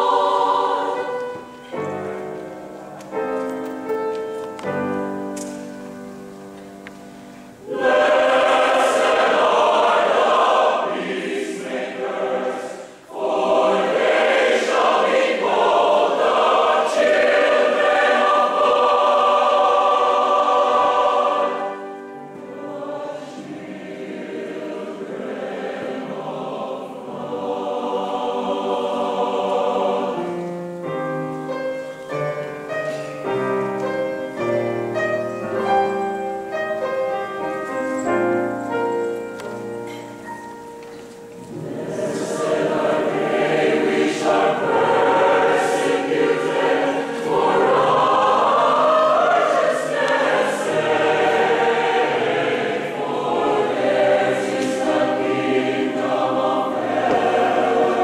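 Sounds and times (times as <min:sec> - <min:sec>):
mixed choir singing: 0:00.0 - 0:02.6, 0:07.6 - 0:30.8, 0:41.3 - 0:58.0
piano notes: 0:00.0 - 0:58.0.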